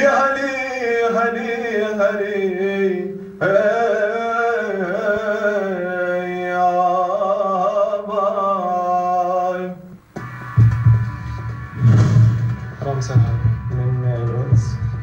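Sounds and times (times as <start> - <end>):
man singing unaccompanied: 0.0 - 10.0
deep booming show music: 10.2 - 15.0.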